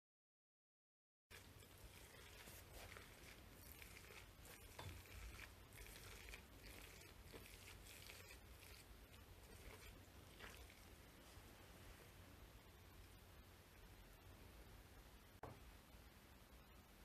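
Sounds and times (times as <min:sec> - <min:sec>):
hand crunching damp rice bran: 0:01.3 - 0:10.9.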